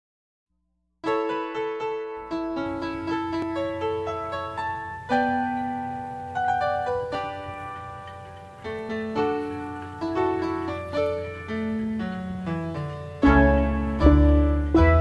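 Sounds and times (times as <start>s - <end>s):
slow piano music: 1.0s - 15.0s.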